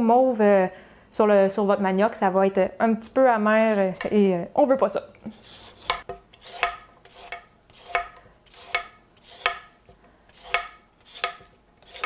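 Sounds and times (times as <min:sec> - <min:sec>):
peeler scraping root skin: 0:05.3 - 0:09.7, 0:10.3 - 0:12.0.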